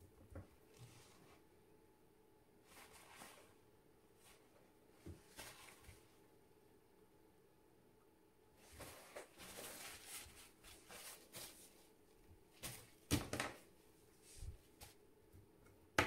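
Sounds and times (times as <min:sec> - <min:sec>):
soft rustling: 0:02.6 - 0:06.2, 0:08.6 - 0:13.0.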